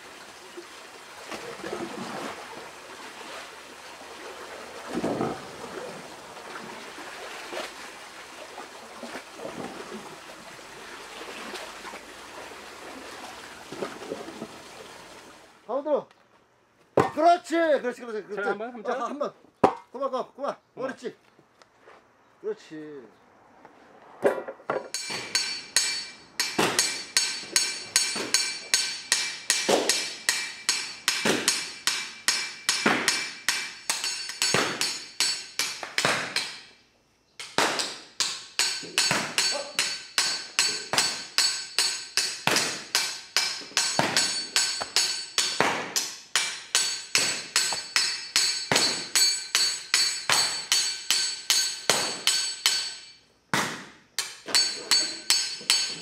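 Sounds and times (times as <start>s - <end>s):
tool striking clay: 24.9s - 36.7s, 37.4s - 56.0s.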